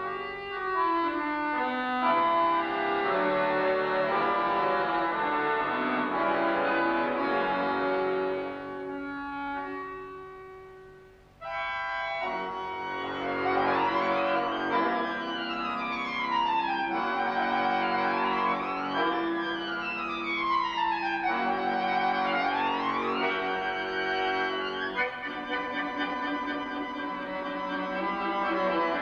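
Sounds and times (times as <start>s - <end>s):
button accordions playing: 0.0s - 10.6s, 11.4s - 29.0s.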